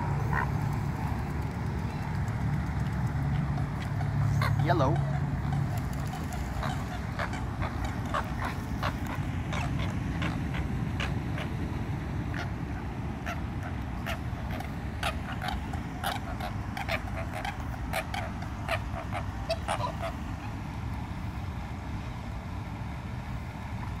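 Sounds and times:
waterfowl calling: 0:03.3 - 0:11.6, 0:12.3 - 0:20.6.

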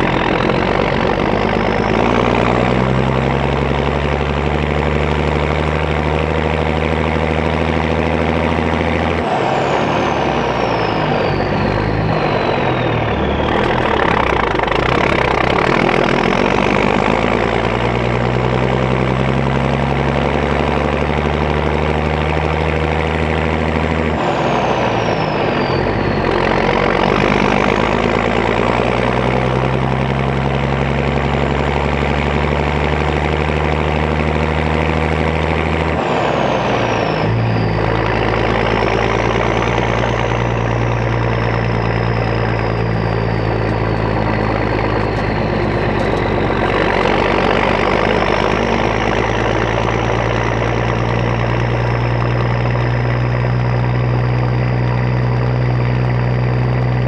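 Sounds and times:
diesel truck engine pulling: 0:00.0 - 0:57.0
high whistle falling: 0:09.0 - 0:18.9, 0:24.0 - 0:30.5, 0:35.8 - 0:57.0.

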